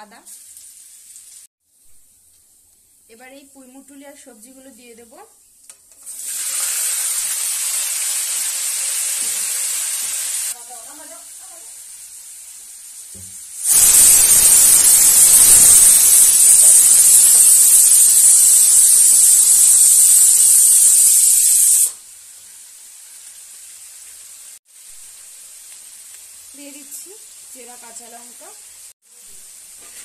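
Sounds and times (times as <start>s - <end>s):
vegetables sizzling in a wok: 0.0s - 30.0s
pressure cooker whistling: 13.6s - 22.0s.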